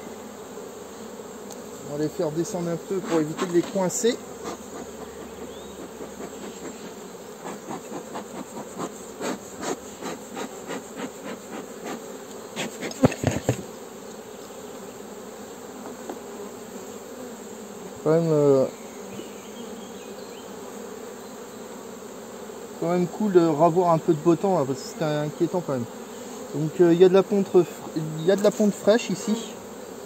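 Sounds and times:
honeybees buzzing: 0:00.0 - 0:30.0
bellows smoker puffs: 0:02.9 - 0:13.6.

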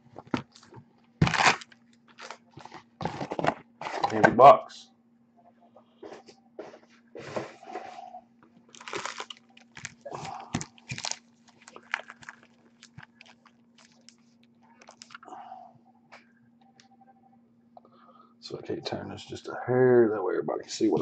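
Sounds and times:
foil packs crinkling: 0:00.2 - 0:04.2, 0:08.7 - 0:15.3.

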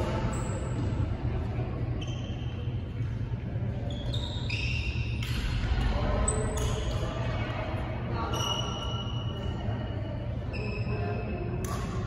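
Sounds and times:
low hall hum: 0:00.0 - 0:12.0
sports shoes squeaking on court: 0:02.0 - 0:02.8, 0:03.8 - 0:05.3.

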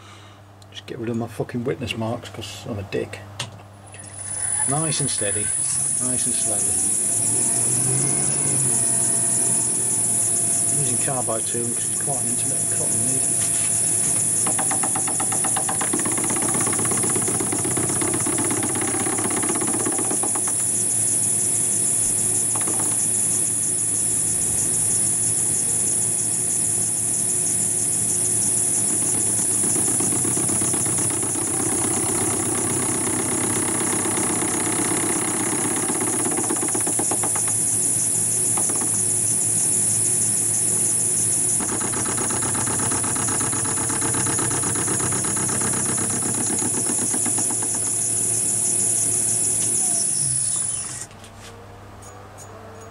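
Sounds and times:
lathe motor humming and whining: 0:04.6 - 0:50.9
tool cutting metal: 0:05.7 - 0:20.9, 0:22.1 - 0:23.4, 0:28.4 - 0:39.2, 0:41.5 - 0:48.5.

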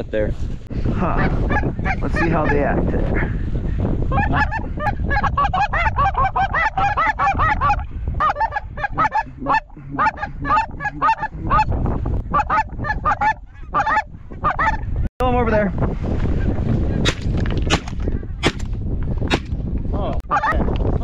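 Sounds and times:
goose call honks: 0:05.6 - 0:11.7.

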